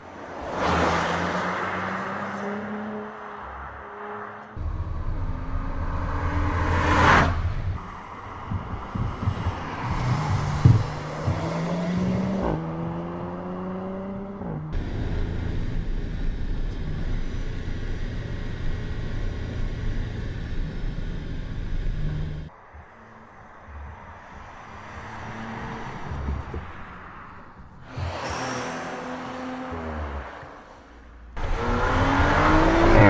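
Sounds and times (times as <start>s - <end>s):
car engine accelerating: 0.7s - 33.0s
tyre and wind noise: 7.2s - 12.6s, 23.6s - 28.6s.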